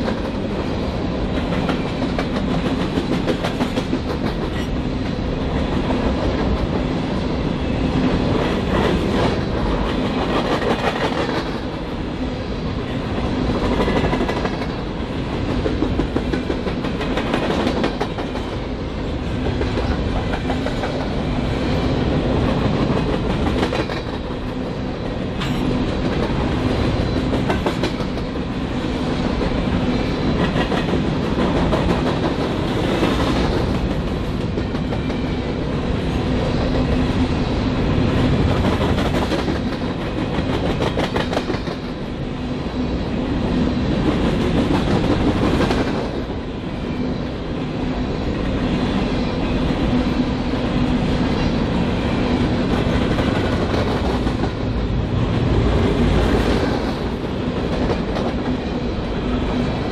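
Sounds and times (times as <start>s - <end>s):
freight train rumble: 0.0s - 59.9s
train wheel clicks: 1.4s - 4.8s, 8.4s - 11.8s, 22.4s - 24.5s, 38.4s - 42.0s.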